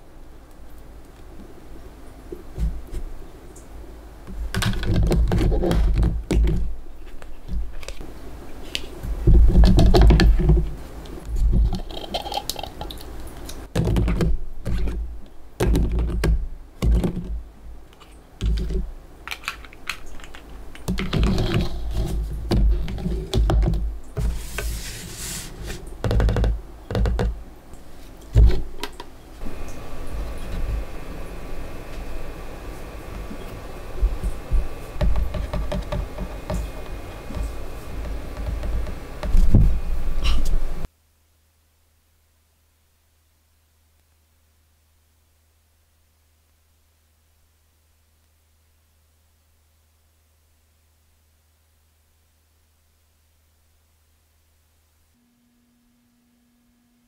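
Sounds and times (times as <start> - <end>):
utensils knocking and clicking: 34.0 - 39.8.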